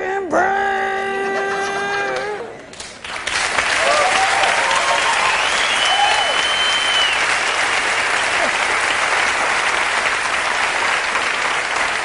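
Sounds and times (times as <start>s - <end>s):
audience applauding: 2.2s - 12.0s
long high whistle: 5.3s - 7.3s.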